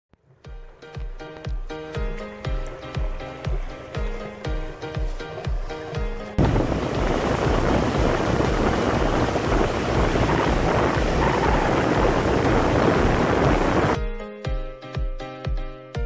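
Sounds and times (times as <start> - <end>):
music with steady beat: 0.4 - 16.0
rushing water: 2.6 - 14.0
wind buffeting microphone: 6.4 - 14.0.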